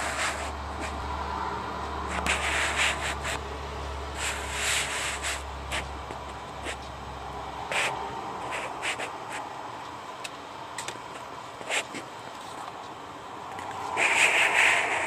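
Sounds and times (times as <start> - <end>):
camera handling rubbing and scraping: 7.7 - 9.4.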